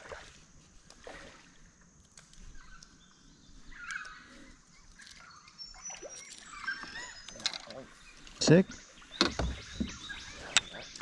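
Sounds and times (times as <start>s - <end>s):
bird calling faintly: 2.3s - 11.0s.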